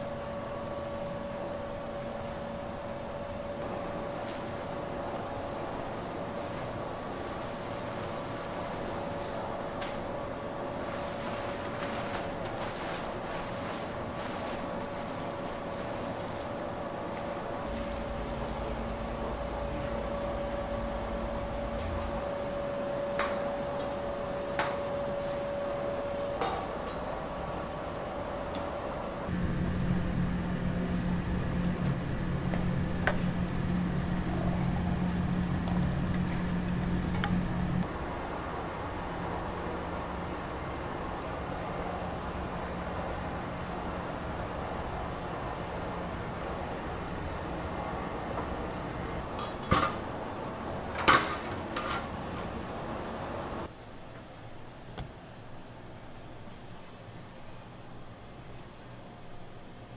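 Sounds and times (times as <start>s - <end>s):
machine humming: 0.0s - 53.7s
kitchen background noise: 48.3s - 53.1s.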